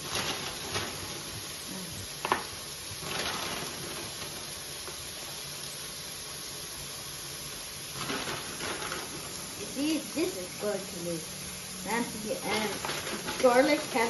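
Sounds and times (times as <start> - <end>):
steaks sizzling in a pan: 0.0 - 14.0.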